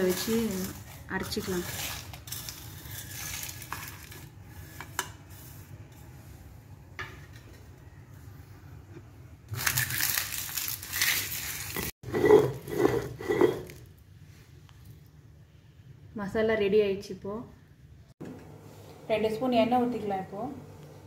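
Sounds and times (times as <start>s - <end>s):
stone roller grinding: 12.0s - 13.8s.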